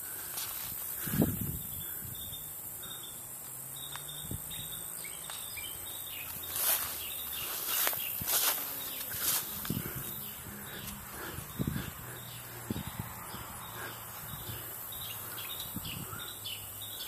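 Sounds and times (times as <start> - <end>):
rustles through foliage: 0.0 - 1.7, 4.9 - 15.7
high insect buzz: 0.0 - 17.0
bird chirps: 1.0 - 17.0.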